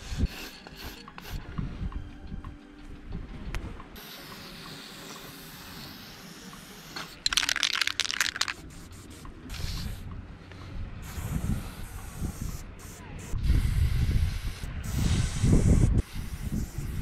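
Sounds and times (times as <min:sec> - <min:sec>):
spray paint can hissing: 0:00.0 - 0:01.4, 0:04.0 - 0:10.1, 0:11.0 - 0:17.0.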